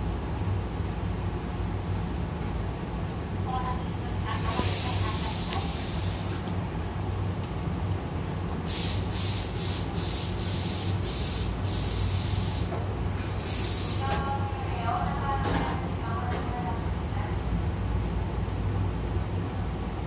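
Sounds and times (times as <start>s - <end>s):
train low steady hum: 0.0s - 20.0s
compressed air hissing: 4.4s - 6.4s, 8.7s - 12.7s, 13.3s - 14.1s.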